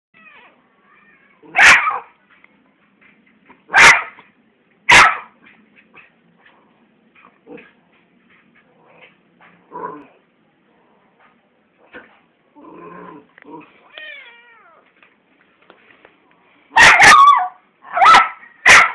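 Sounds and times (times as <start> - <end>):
dog barking: 1.5 - 2.1, 3.7 - 4.2, 4.9 - 5.4, 16.7 - 18.9.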